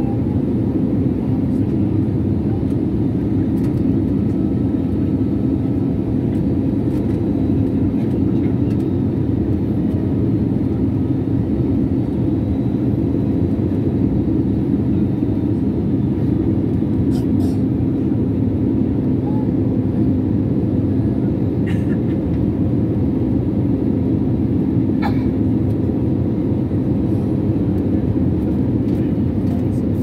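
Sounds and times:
jet cabin engine roar: 0.0s - 30.0s.

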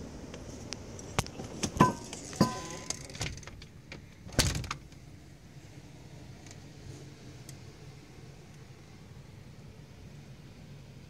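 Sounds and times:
metallic ring: 1.8s - 3.0s.

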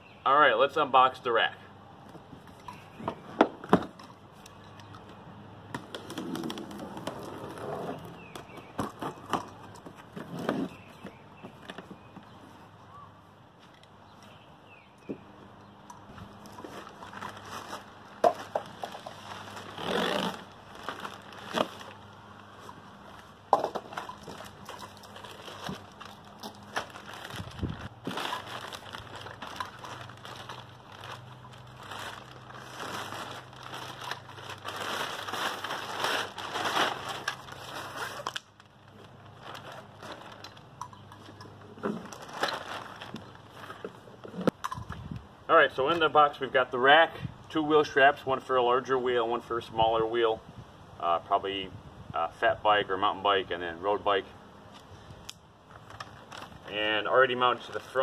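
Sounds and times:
plastic packaging crinkling: 16.4s - 22.3s, 23.9s - 41.4s, 42.0s - 43.9s, 55.7s - 56.7s.

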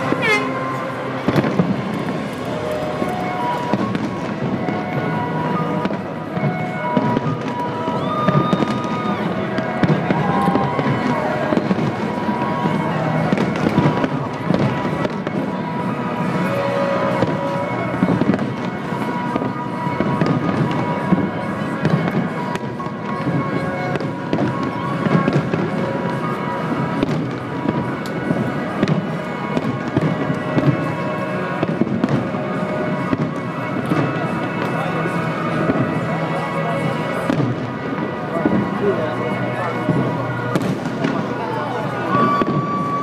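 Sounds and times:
music playing: 0.0s - 8.0s
fireworks bangs and crackles: 0.0s - 43.0s.

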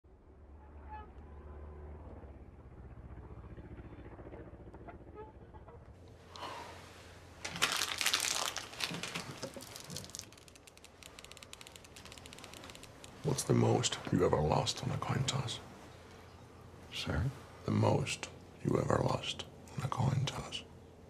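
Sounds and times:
foil wrapper crumpling: 7.4s - 13.0s
wrapper crackling on wooden counter: 7.4s - 13.1s.

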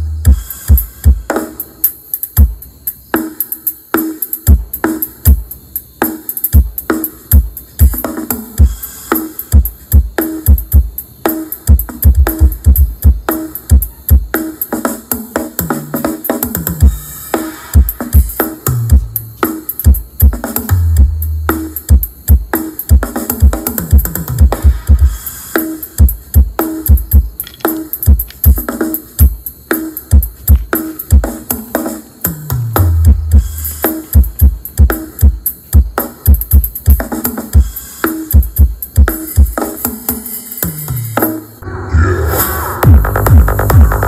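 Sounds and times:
heavy kick drum: 0.0s - 1.3s, 2.4s - 2.8s, 4.5s - 5.5s, 6.6s - 8.0s, 8.6s - 8.8s, 9.5s - 11.0s, 11.7s - 14.3s, 15.6s - 17.1s, 17.8s - 25.2s, 26.0s - 27.4s, 28.0s - 31.5s, 32.3s - 39.6s, 42.8s - 44.0s
electronic dance music: 0.0s - 40.1s, 41.4s - 44.0s
deep sliding bass notes: 41.6s - 44.0s.

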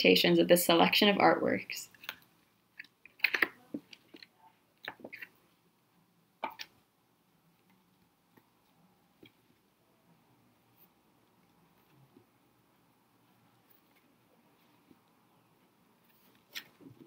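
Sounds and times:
paper pages flipping: 16.0s - 17.0s.

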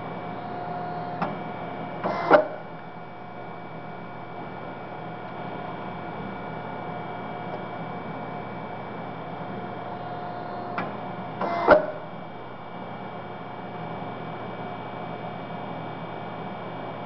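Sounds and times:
motor and hydraulic pump humming: 0.0s - 17.0s.

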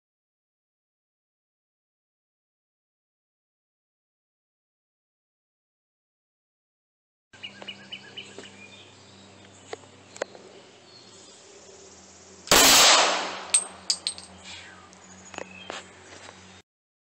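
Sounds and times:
pistol shot: 12.5s - 13.8s
light metallic clinks: 13.5s - 14.4s.

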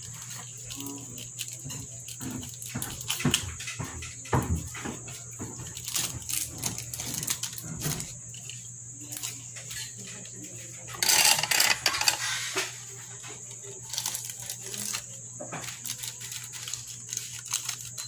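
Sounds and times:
fingers tapping on fan motor: 0.0s - 18.0s
loud scratchy rustle: 11.0s - 18.0s.

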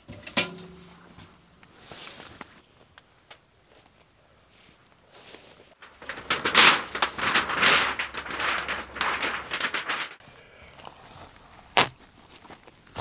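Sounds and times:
sheet metal crinkling rattle: 5.8s - 10.2s.

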